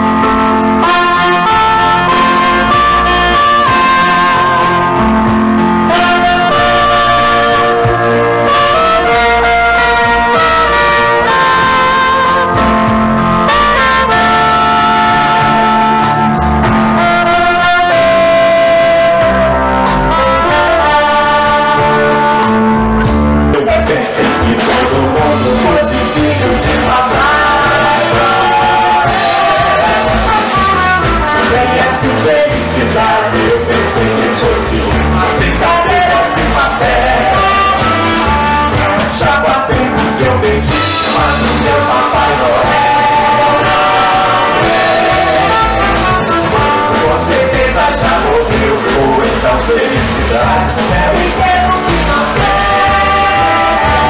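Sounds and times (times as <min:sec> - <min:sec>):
live jazz band playing: 0:00.0 - 0:54.0
woman and man singing: 0:23.5 - 0:54.0.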